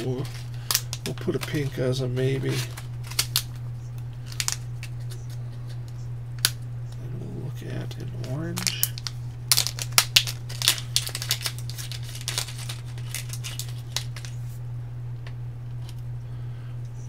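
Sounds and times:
plastic bag crinkling: 0.0s - 3.6s, 4.2s - 5.0s, 8.2s - 14.5s
steady low hum: 0.0s - 17.0s.

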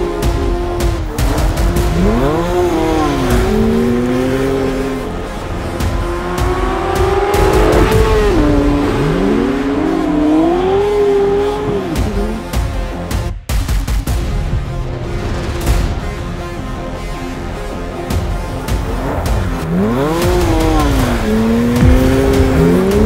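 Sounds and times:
car engine revving hard: 0.0s - 13.0s, 18.1s - 23.0s.

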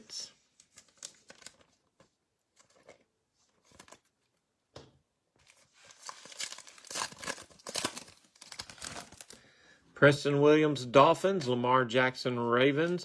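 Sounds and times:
foil wrapper crinkling and tearing: 5.5s - 9.4s.

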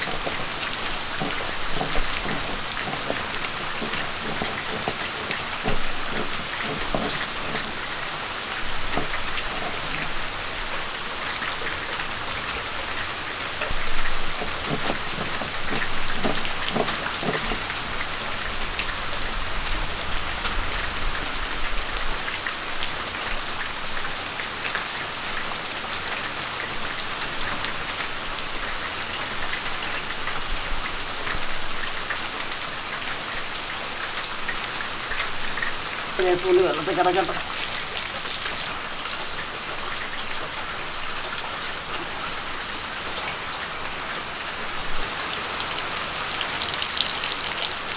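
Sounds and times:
crunches and knocks: 0.0s - 8.0s, 14.1s - 17.8s, 46.5s - 47.9s
stone roller grinding: 0.0s - 10.7s, 13.7s - 17.9s, 46.4s - 47.9s.

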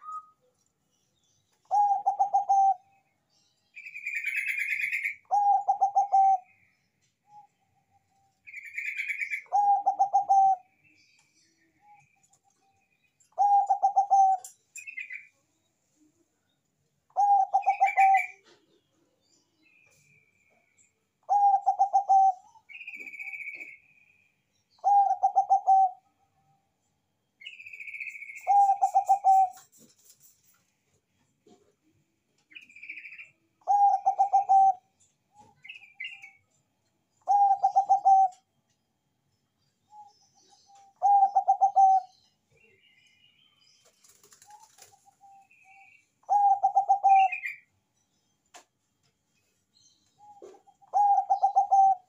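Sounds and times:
higher bird chirps: 1.2s - 3.1s, 27.4s - 30.4s, 39.3s - 48.3s, 49.8s - 52.0s
dove cooing: 1.7s - 2.9s, 4.3s - 6.5s, 8.9s - 10.7s, 13.4s - 14.5s, 17.1s - 18.8s, 21.3s - 23.7s, 24.8s - 26.0s, 28.4s - 29.8s, 33.6s - 36.2s, 37.2s - 38.4s, 40.8s - 42.2s, 44.4s - 47.6s, 50.2s - 52.0s.

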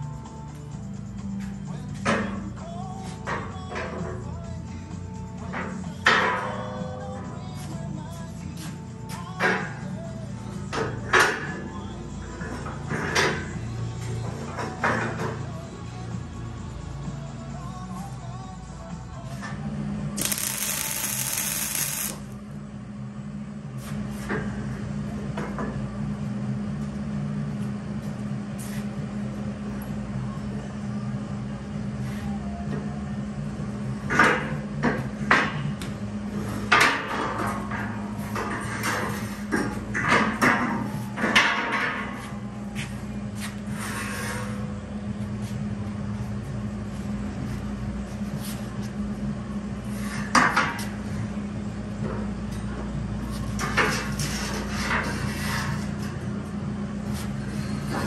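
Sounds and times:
steady low hum: 0.0s - 58.0s
welding arc crackling and hissing: 20.2s - 22.3s.

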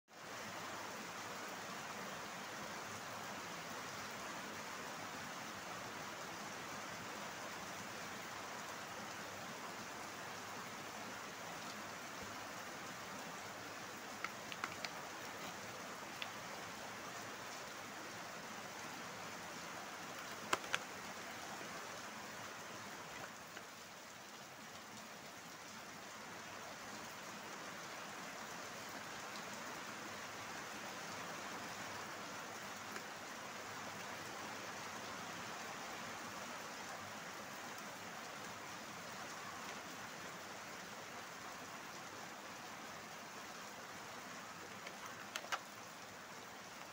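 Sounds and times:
steady hiss: 0.1s - 46.9s
sharp clicks: 14.2s - 15.0s, 44.8s - 45.7s.

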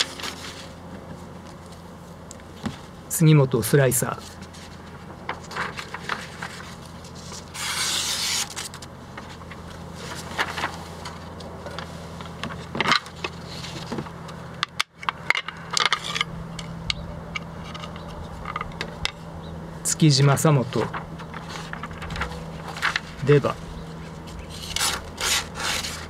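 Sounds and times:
paper rustling: 4.2s - 11.4s, 20.7s - 26.0s
knife slicing paper: 7.4s - 8.8s, 24.5s - 26.0s.

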